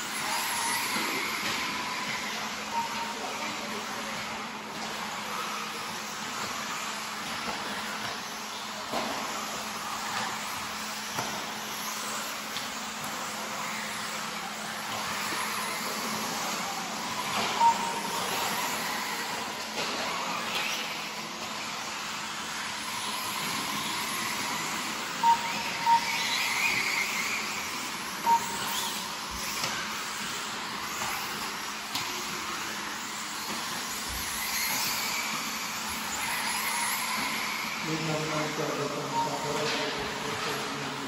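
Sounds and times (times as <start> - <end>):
rc car motors whirring: 0.0 - 41.0
short sharp beeps: 17.6 - 18.3.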